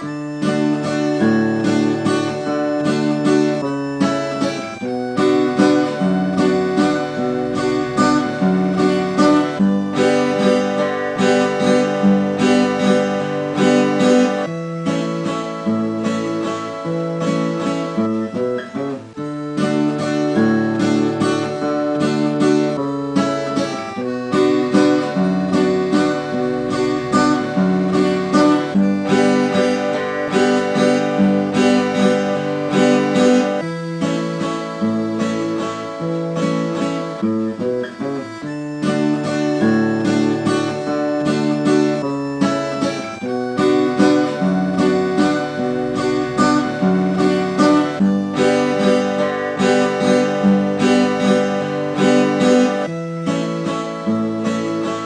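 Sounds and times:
acoustic guitars strumming: 0.0s - 55.0s
piano accordion chords: 0.0s - 55.0s.

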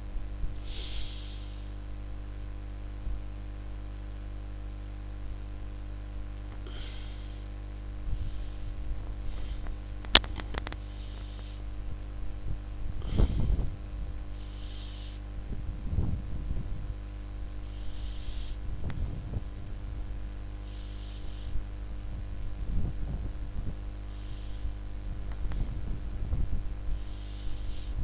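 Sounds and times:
low electrical hum: 0.0s - 28.0s.

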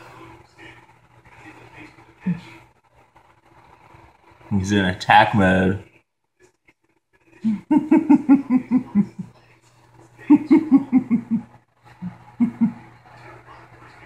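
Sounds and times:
man laughing: 7.5s - 9.3s, 10.2s - 11.5s.

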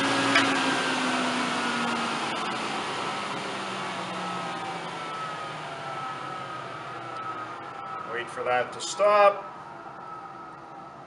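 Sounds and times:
table saw spinning down: 0.0s - 5.1s.

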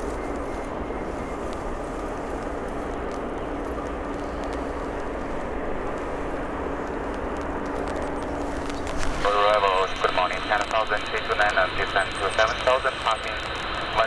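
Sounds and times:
jet aircraft noise: 0.0s - 14.0s
low steady hum: 0.0s - 14.0s.

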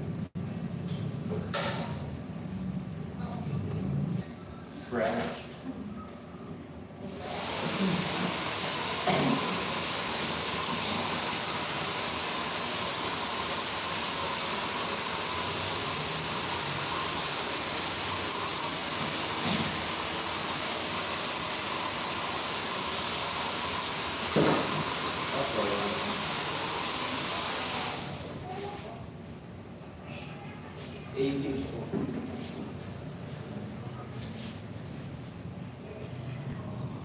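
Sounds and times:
hair dryer running: 7.0s - 28.4s.

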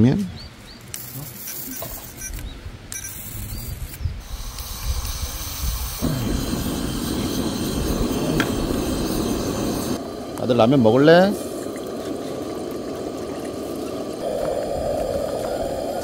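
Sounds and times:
gas hissing from burner: 3.1s - 16.0s
burner flame roaring steadily: 4.2s - 16.0s.

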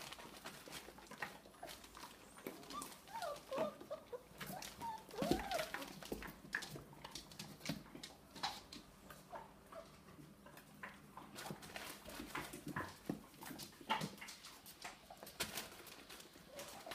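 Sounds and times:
puppy claws clicking and scrabbling: 0.0s - 16.9s
puppy squeaks and whimpers: 2.6s - 6.1s.

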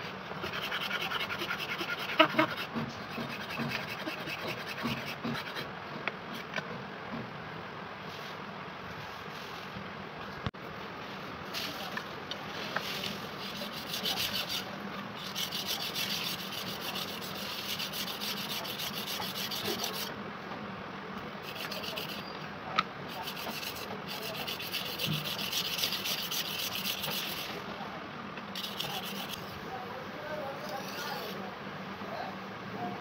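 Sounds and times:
knife rasping on sharpening stone: 13.4s - 20.1s, 21.4s - 22.3s, 23.1s - 27.5s, 28.6s - 29.4s.

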